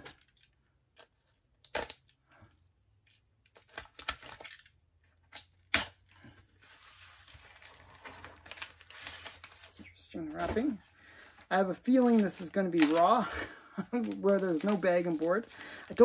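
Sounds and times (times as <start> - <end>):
paper rustling and crinkling: 6.1 - 16.0
cardboard and paper ripping: 6.5 - 16.0.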